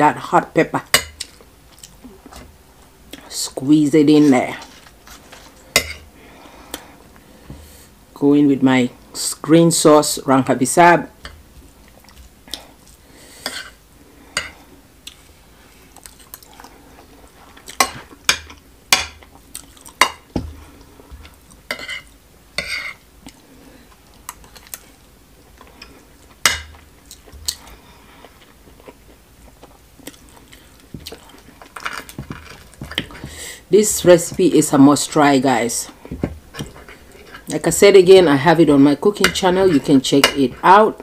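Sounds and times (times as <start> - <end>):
chewing and mouth smacks: 1.2 - 2.0, 15.9 - 16.8, 19.2 - 20.0, 27.0 - 32.1.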